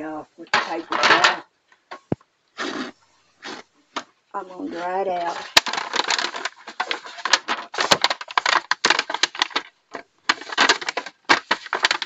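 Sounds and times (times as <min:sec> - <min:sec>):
paper towel rubbing in metal pan: 0:04.4 - 0:08.5.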